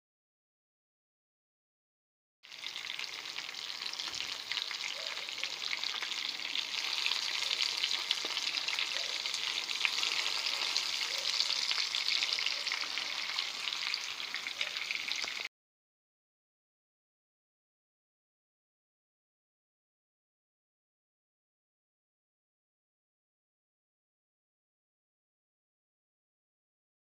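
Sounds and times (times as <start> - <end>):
chicken sizzling in hot oil: 2.4 - 15.5.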